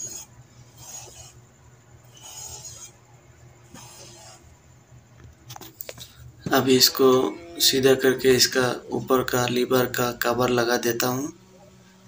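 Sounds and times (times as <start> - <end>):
faint low hum: 0.0 - 12.0
soft scrapes on gearbox: 2.1 - 3.0.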